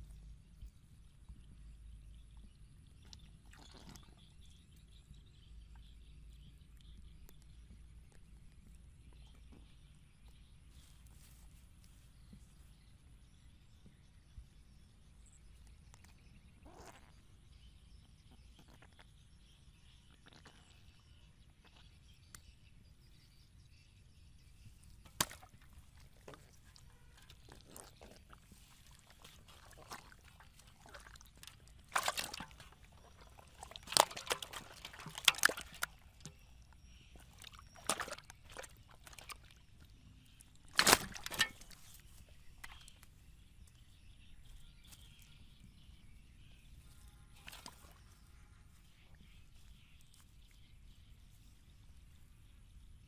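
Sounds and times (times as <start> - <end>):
fish flopping in a basin: 25.0 - 43.1, 47.4 - 48.0.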